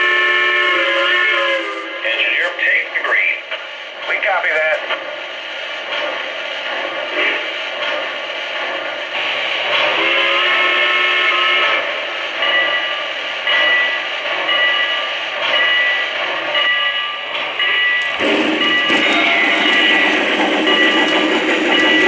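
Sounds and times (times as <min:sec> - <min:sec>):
steam hiss: 0:05.0 - 0:16.6, 0:18.1 - 0:22.0
bell ringing: 0:16.6 - 0:22.0.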